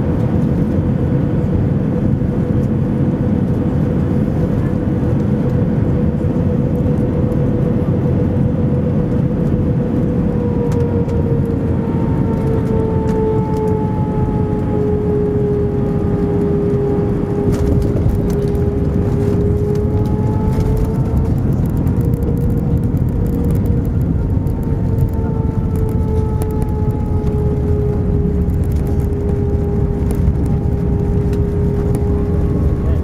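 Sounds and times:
jet engines whining: 0.0s - 33.0s
low cabin rumble: 0.0s - 33.0s.

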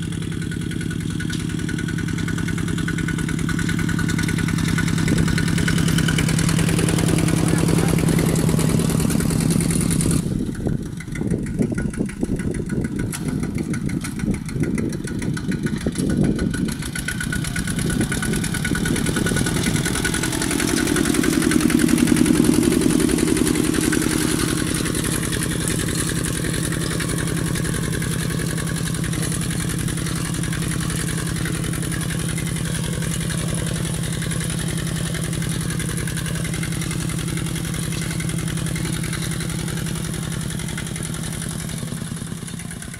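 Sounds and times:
diesel tractor engine under load: 0.0s - 42.9s.

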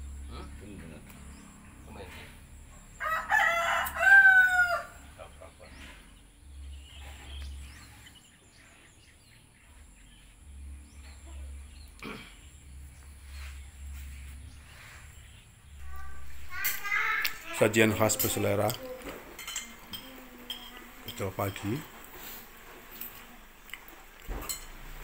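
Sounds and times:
rooster crowing: 3.0s - 5.2s.

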